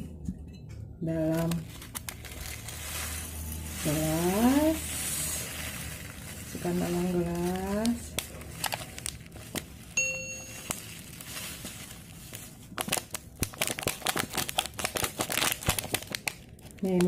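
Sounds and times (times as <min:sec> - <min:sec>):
plastic sachet crinkling: 0:01.2 - 0:17.0
brief ringing ping: 0:10.0 - 0:10.7.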